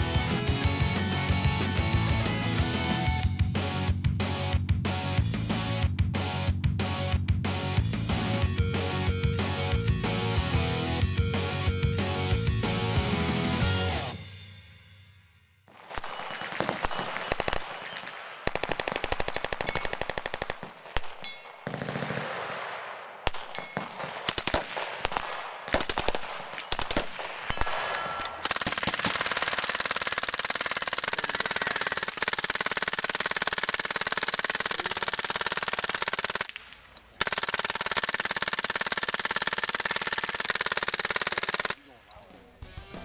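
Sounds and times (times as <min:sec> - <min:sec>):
machine-gun fire: 0:15.7 - 0:36.6, 0:37.2 - 0:41.8.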